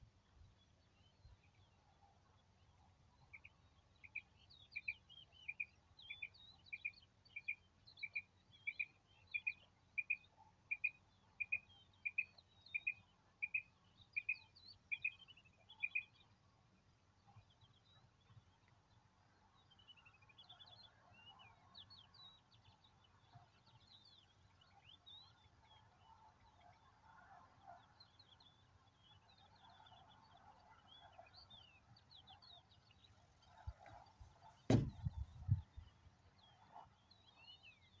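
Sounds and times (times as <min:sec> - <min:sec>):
small birds chirping: 0:03.2 - 0:16.3
sharp knock: 0:34.7 - 0:35.1
low thumps: 0:34.7 - 0:35.3.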